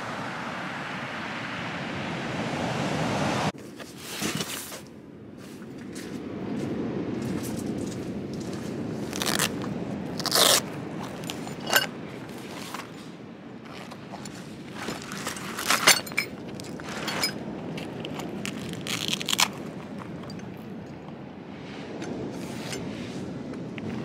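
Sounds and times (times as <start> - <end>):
stones crunching and scraping: 7.2 - 20.6
metal tent pegs clinking: 9.1 - 9.5, 10.2 - 12.9, 13.7 - 19.5.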